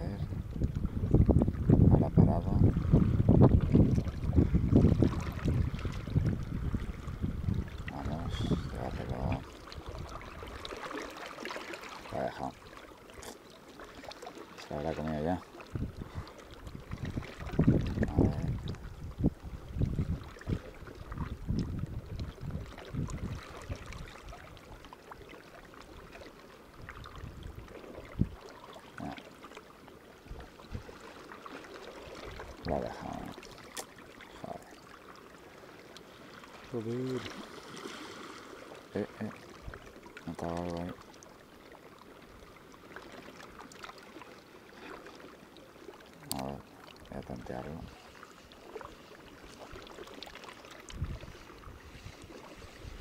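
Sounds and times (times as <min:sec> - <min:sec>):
wind buffeting microphone: 0:00.0 - 0:10.6, 0:15.7 - 0:24.3, 0:26.8 - 0:28.4, 0:50.9 - 0:53.0
water trickling among rocks: 0:00.0 - 0:53.0.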